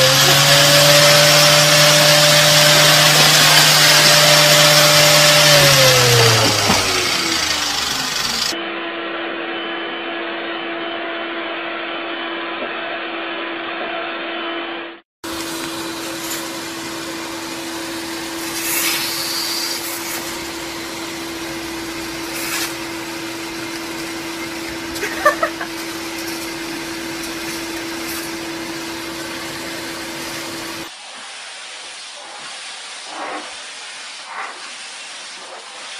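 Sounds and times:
vacuum cleaner humming: 0:00.0 - 0:09.0, 0:15.2 - 0:31.6.

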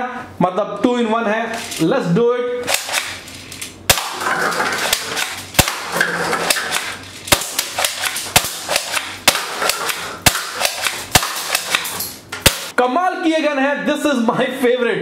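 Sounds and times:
toy airsoft gun shots: 0:02.6 - 0:03.2, 0:03.9 - 0:12.7
paper cups clattering over: 0:04.2 - 0:07.3.

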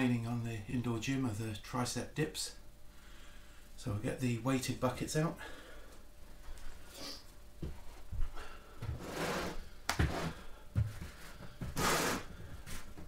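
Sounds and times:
rustling scrapes: 0:08.9 - 0:13.0.

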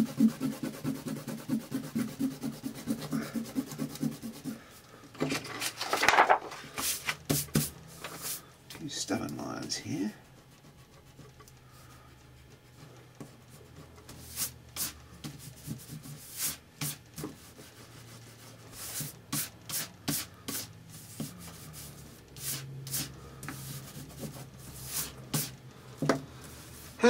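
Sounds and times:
eraser rubbing on paper: 0:00.0 - 0:04.7, 0:10.0 - 0:25.6.

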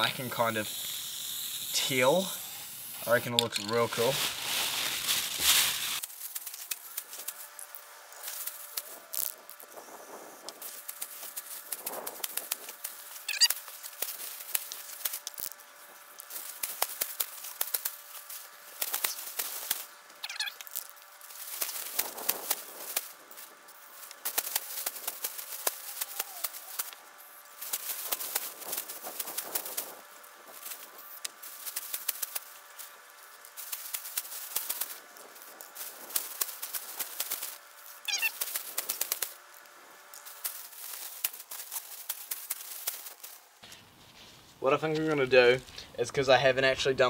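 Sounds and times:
aerosol spray hiss: 0:00.0 - 0:03.3
plastic bag crinkling: 0:03.1 - 0:09.4, 0:10.6 - 0:27.0, 0:30.6 - 0:43.7.

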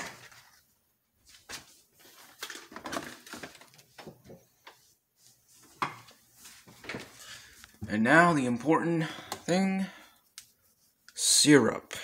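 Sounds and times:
items knocking and clattering: 0:02.2 - 0:04.5.

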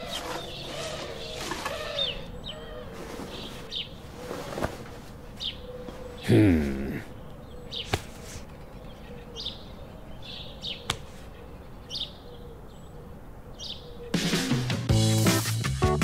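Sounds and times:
music: 0:14.2 - 0:16.0.

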